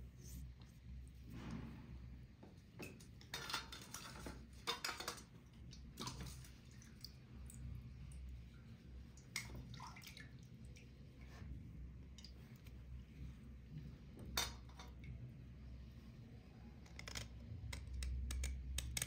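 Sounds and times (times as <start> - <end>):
water dripping and splashing: 2.8 - 13.0.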